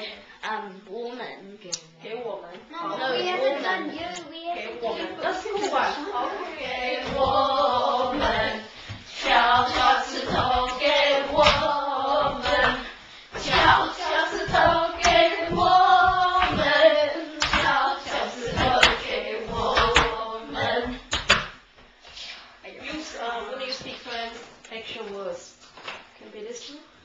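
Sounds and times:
group of voices singing: 0:04.8 - 0:21.4
sharp hand claps: 0:21.1 - 0:21.6.

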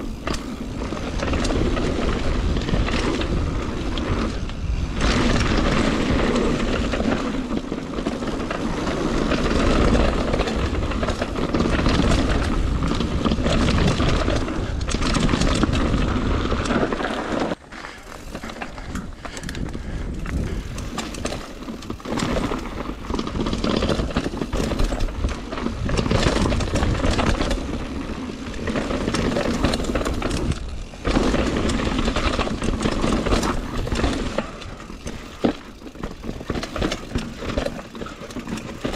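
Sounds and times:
bike rattling and clicking: 0:00.0 - 0:38.9
tyres rolling over dirt: 0:00.0 - 0:38.9
wind rush on microphone: 0:18.2 - 0:35.5.

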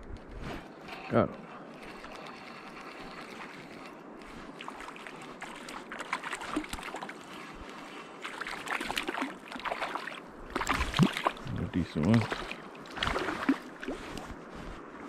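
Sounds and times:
fish splashing at surface: 0:12.1 - 0:14.1.

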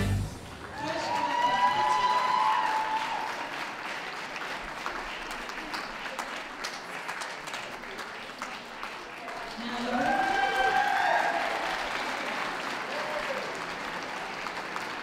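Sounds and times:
held musical tone: 0:00.0 - 0:00.6
audience applauding: 0:00.0 - 0:15.0.

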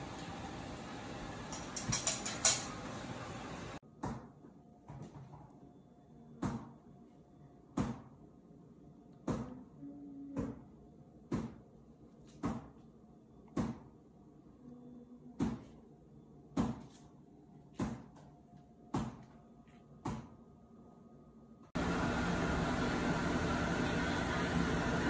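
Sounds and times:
brief low tone: 0:14.6 - 0:15.3.

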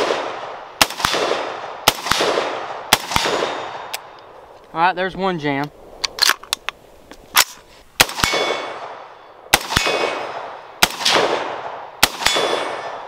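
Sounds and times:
gunshots: 0:00.0 - 0:03.9, 0:08.0 - 0:13.0.

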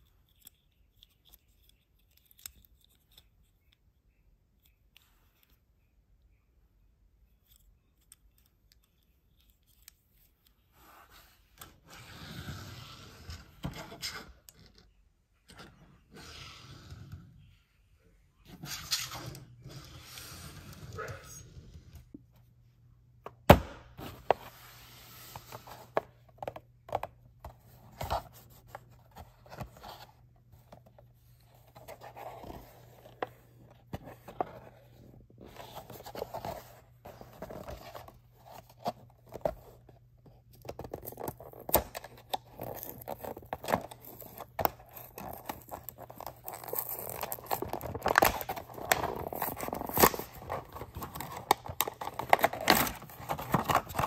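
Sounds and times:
cardboard scraping and tearing: 0:41.0 - 0:54.0.

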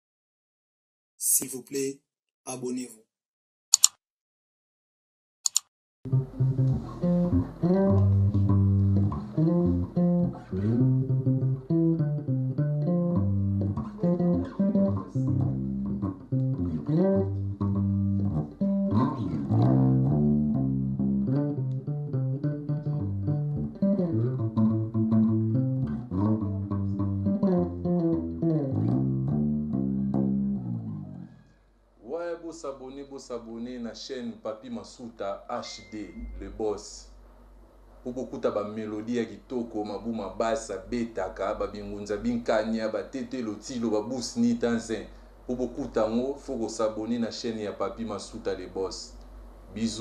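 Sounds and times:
electric bass guitar plucked: 0:06.1 - 0:31.3.

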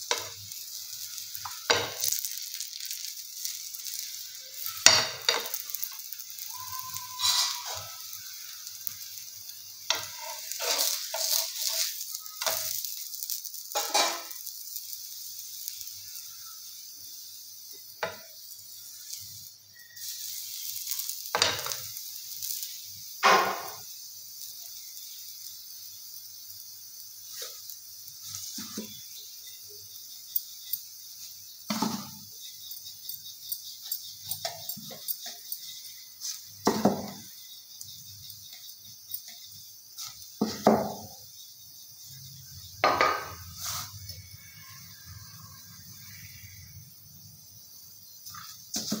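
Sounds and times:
flatbread sizzling in a pan: 0:00.0 - 0:49.0
metal spoon scraping a pan: 0:00.1 - 0:09.1, 0:09.8 - 0:14.7, 0:42.9 - 0:44.0.

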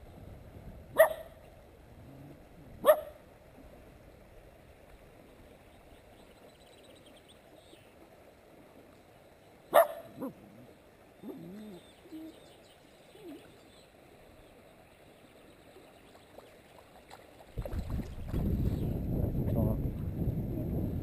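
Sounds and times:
shallow stream rushing: 0:00.0 - 0:20.3
dog barking: 0:01.0 - 0:01.4, 0:02.8 - 0:03.2, 0:09.7 - 0:10.4.

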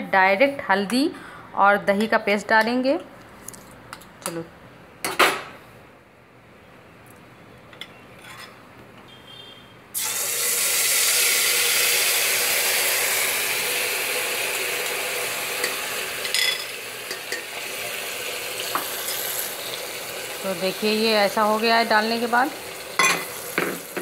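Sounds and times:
paste sizzling in hot oil: 0:10.0 - 0:24.0.

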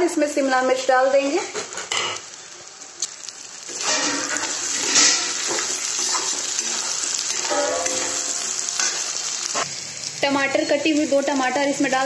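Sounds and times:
vegetables sizzling in hot oil: 0:00.0 - 0:12.0
spatula scraping a pan: 0:03.7 - 0:09.2.

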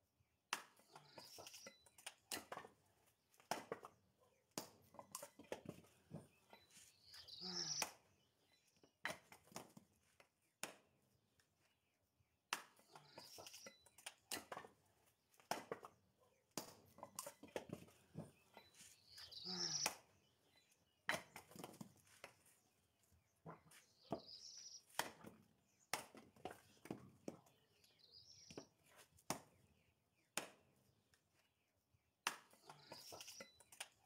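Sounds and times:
hatchet chopping firewood: 0:00.5 - 0:06.3, 0:12.5 - 0:18.4, 0:21.0 - 0:22.4, 0:23.4 - 0:27.4, 0:30.3 - 0:31.1, 0:32.2 - 0:34.0.

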